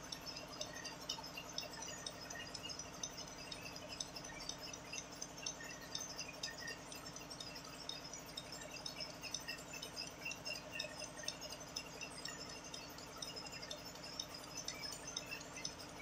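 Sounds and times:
faint high clinks: 0:00.0 - 0:16.0
milking machine pulsing hum: 0:00.0 - 0:16.0.

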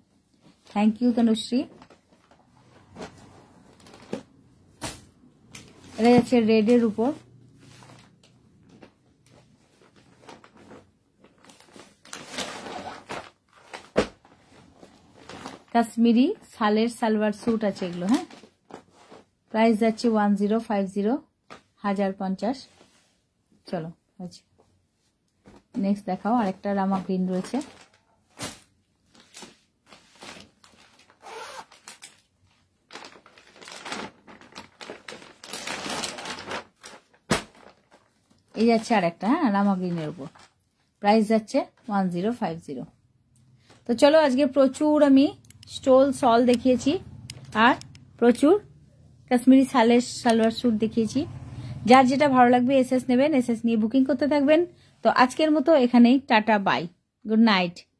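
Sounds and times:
plastic packaging crinkling: 0:09.8 - 0:14.0, 0:27.1 - 0:32.3, 0:32.9 - 0:38.9
plastic packet crinkling: 0:32.9 - 0:38.6.

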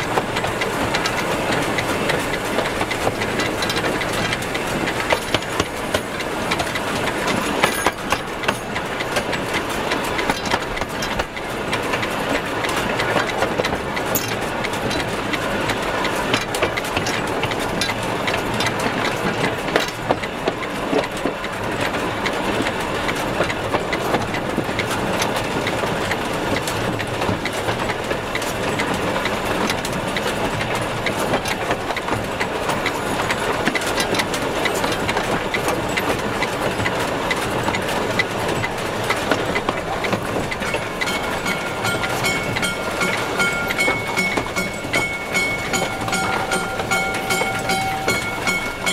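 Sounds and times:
sharp clicks and knocks: 0:00.0 - 0:21.6, 0:32.8 - 0:48.9
steam locomotive running gear clatter: 0:00.0 - 0:48.9.

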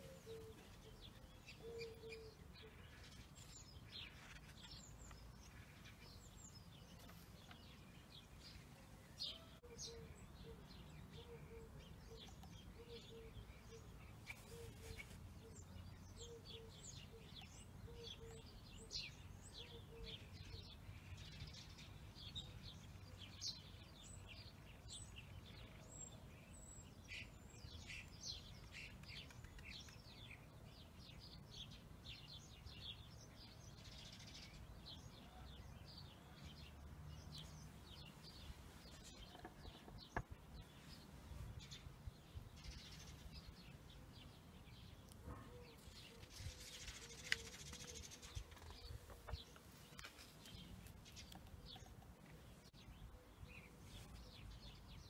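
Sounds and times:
small birds chirping: 0:00.0 - 0:55.0.

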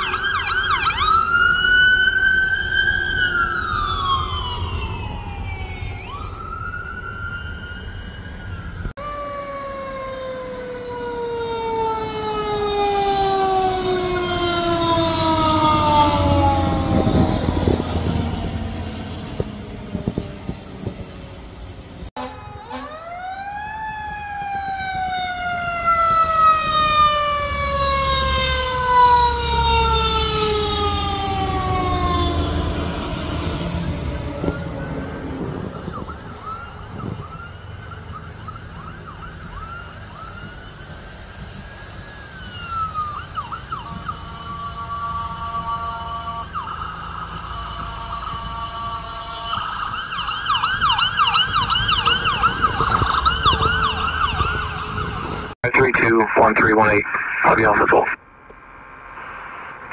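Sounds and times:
fire engine sirens: 0:00.0 - 0:58.2.

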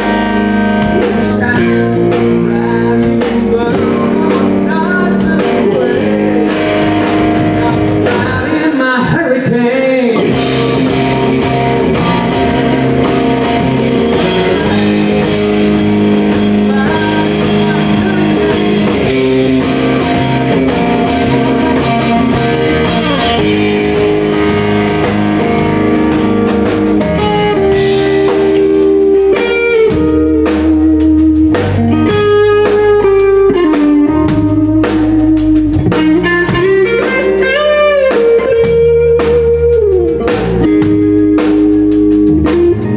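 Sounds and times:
drums: 0:00.0 - 0:42.9
electric guitar: 0:00.0 - 0:42.9
man singing: 0:00.9 - 0:24.5, 0:35.8 - 0:39.4.

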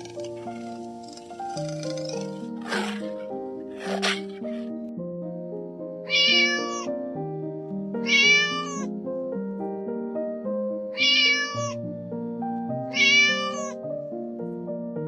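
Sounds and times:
soft background music: 0:00.0 - 0:15.0
kitten meowing: 0:06.1 - 0:06.9, 0:08.0 - 0:08.9, 0:10.9 - 0:11.8, 0:12.9 - 0:13.8.

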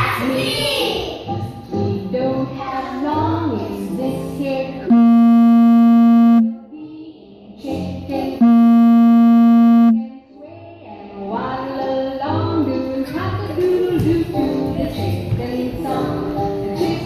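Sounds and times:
buzzy synthesizer notes: 0:04.9 - 0:06.6, 0:08.4 - 0:10.1.

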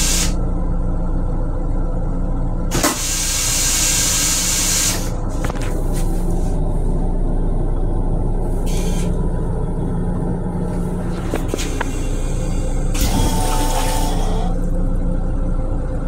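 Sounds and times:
toilet flush water hissing: 0:00.0 - 0:00.3, 0:02.7 - 0:05.1, 0:11.9 - 0:14.6
railcar low rumble: 0:00.0 - 0:16.0.

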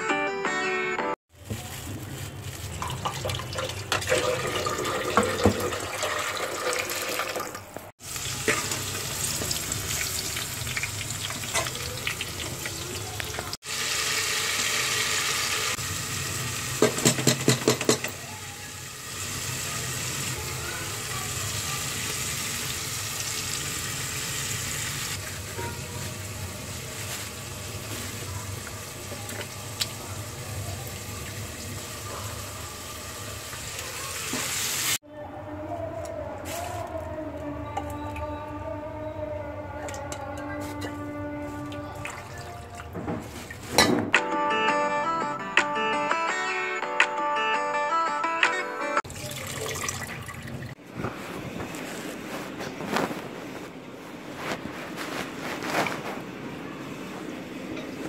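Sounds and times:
water running at a sink: 0:02.6 - 0:35.0, 0:49.0 - 0:50.8
food sizzling in a pot: 0:08.0 - 0:35.0
pots and dishes clattering: 0:16.8 - 0:18.2, 0:43.0 - 0:44.2.

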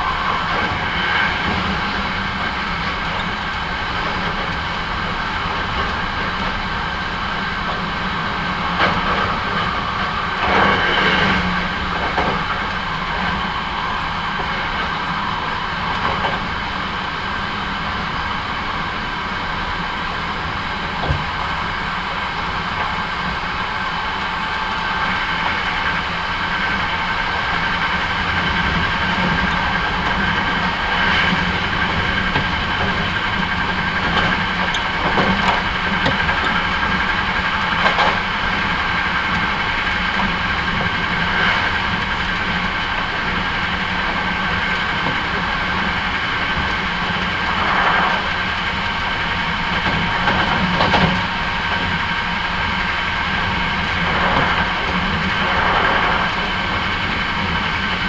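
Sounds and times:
track clacks: 0:00.0 - 0:58.0
train wheels rumbling on rails: 0:00.0 - 0:58.0
train whine: 0:00.0 - 0:58.0.

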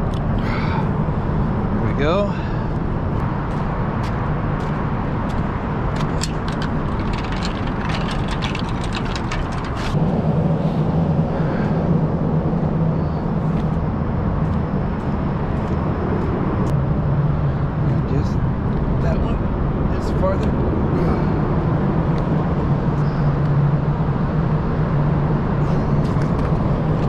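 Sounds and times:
engine running: 0:00.0 - 0:27.0
sharp clicks and crackles: 0:05.9 - 0:10.0.

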